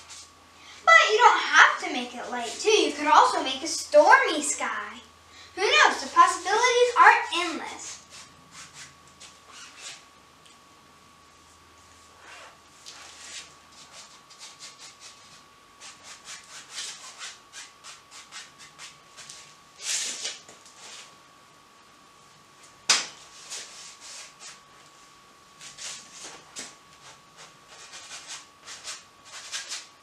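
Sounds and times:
brush scrubbing on canvas: 12.2 - 21.1, 23.3 - 24.6, 25.6 - 29.9.

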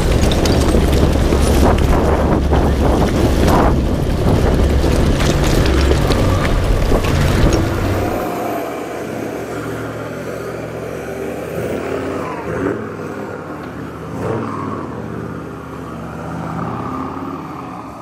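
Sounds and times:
tyres knocking and splashing: 0.0 - 8.4
wind buffeting microphone: 0.0 - 8.6
engine and tyre rumble: 0.0 - 18.0.

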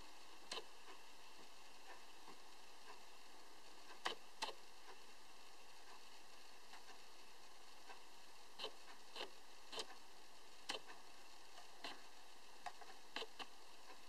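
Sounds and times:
steady low hiss: 0.0 - 14.0
faint clicks and taps of toy: 12.6 - 14.0.

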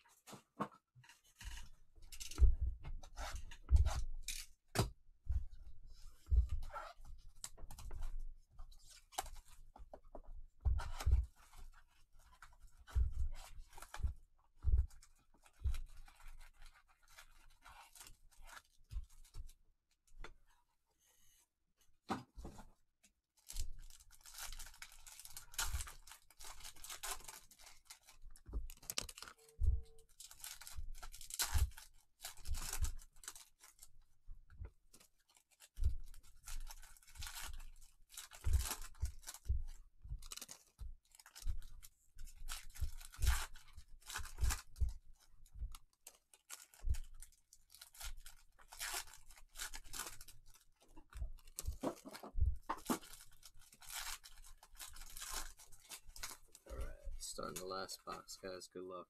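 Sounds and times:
foil wrappers tearing and crinkling: 23.4 - 33.9, 34.9 - 39.5, 40.2 - 41.8, 45.8 - 56.7.

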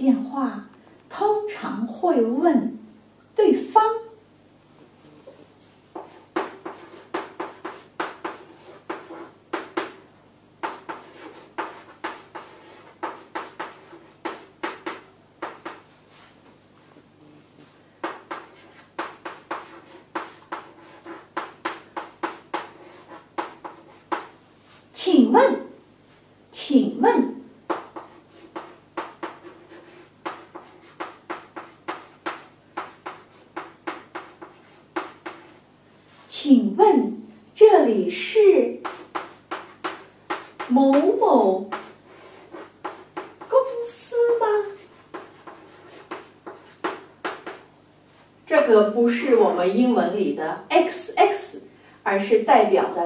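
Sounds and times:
chalk tapping and scratching: 5.9 - 10.0, 10.6 - 16.5, 17.6 - 24.9, 27.7 - 36.2, 38.8 - 48.3.

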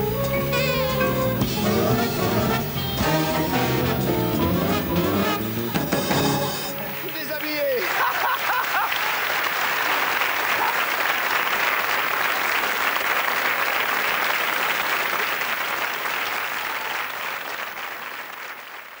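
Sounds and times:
studio audience applauding: 6.6 - 19.0.

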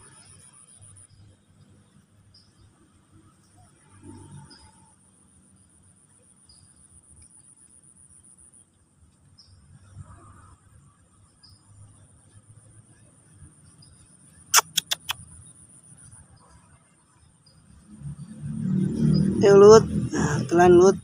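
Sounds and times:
insect trilling: 13.8 - 16.1
sharp clicks: 14.6 - 15.3.

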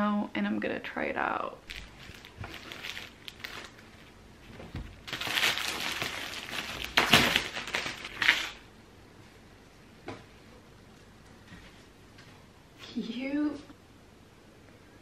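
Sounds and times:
plastic wrapping crinkling: 1.7 - 8.6.

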